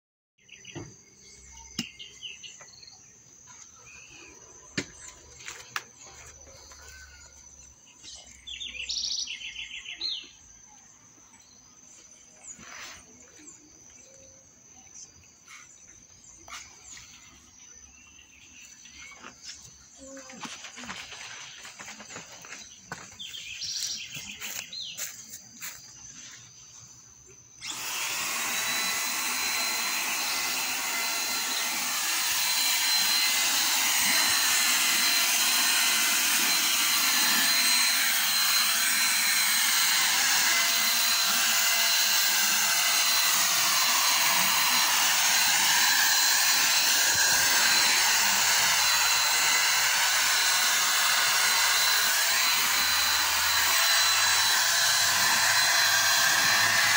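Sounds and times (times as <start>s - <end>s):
electric paint sprayer running: 18.7s - 25.8s, 27.5s - 56.9s.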